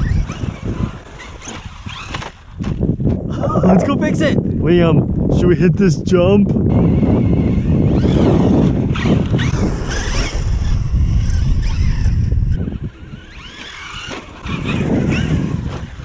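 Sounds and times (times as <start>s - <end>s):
electric motor whining: 0.0s - 2.7s, 6.6s - 16.0s
wind buffeting microphone: 0.0s - 16.0s.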